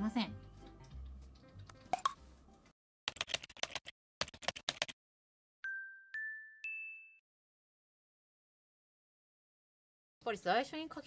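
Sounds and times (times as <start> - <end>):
rising chime dings: 5.6 - 7.2.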